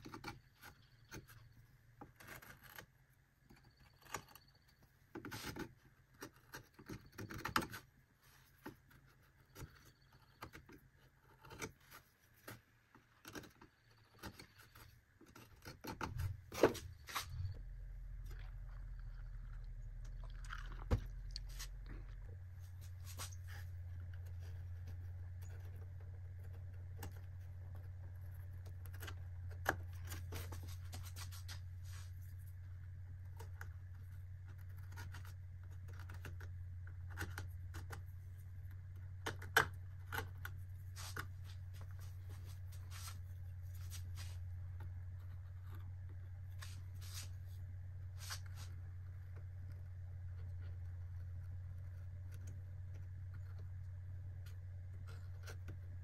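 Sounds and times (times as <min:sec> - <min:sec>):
steady low hum: 0:00.0 - 0:56.0
brush scratching on wood: 0:40.8 - 0:44.5, 0:46.6 - 0:47.6.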